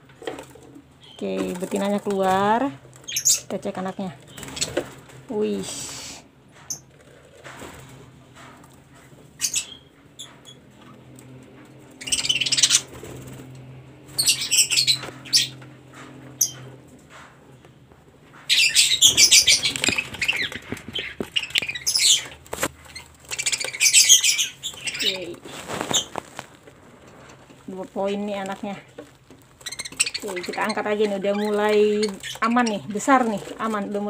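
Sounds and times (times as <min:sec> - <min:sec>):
budgerigars chattering: 0:03.1 - 0:04.8, 0:09.4 - 0:10.6, 0:12.0 - 0:13.0, 0:14.1 - 0:15.6, 0:16.3 - 0:16.7, 0:18.4 - 0:26.1, 0:29.6 - 0:34.0.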